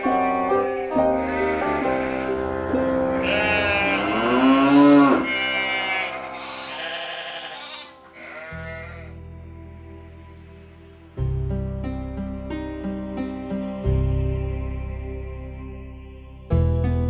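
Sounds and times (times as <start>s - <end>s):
soft background music: 0.0s - 17.0s
cow mooing: 1.0s - 9.1s.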